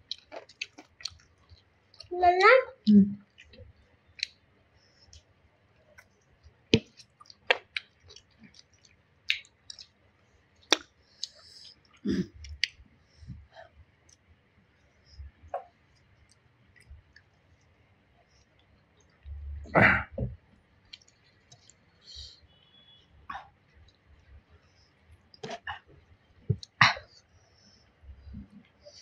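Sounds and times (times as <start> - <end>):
chewing: 0.0 - 2.1, 6.8 - 9.9, 20.9 - 21.8.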